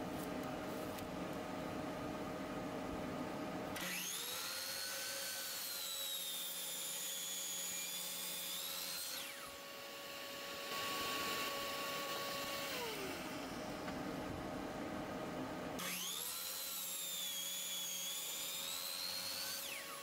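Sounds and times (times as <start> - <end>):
low steady hum: 0.0 - 3.8, 11.4 - 15.8
miter saw cutting wood: 3.8 - 13.9, 15.8 - 20.0.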